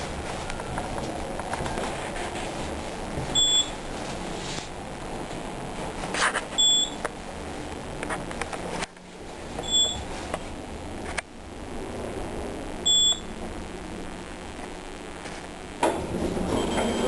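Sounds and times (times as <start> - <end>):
elevator car hum: 0.0 - 17.0
short high elevator beeps: 3.4 - 3.8, 6.6 - 7.0, 9.6 - 10.0, 16.5 - 17.0
elevator doors opening: 15.8 - 17.0.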